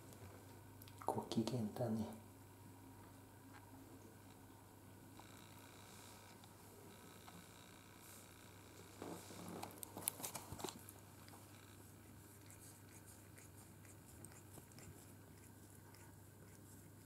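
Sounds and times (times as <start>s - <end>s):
cat chewing crunchy clicks: 9.9s - 17.0s
cat licking paw: 10.6s - 17.0s.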